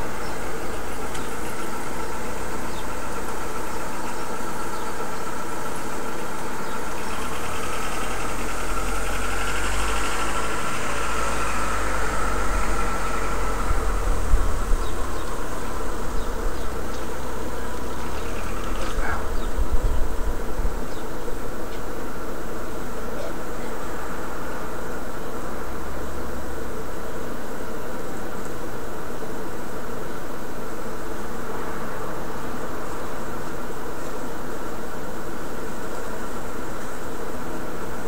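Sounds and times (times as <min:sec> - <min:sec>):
mechanical hum: 0:00.0 - 0:38.0
car passing: 0:07.2 - 0:19.4.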